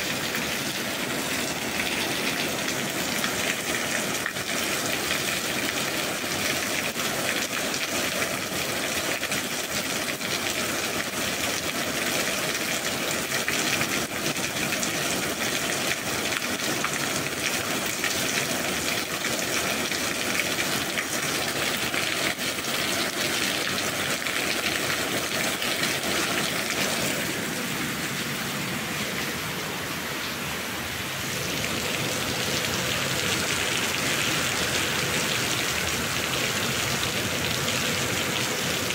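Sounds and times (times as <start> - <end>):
steady rain: 0.0 - 38.9.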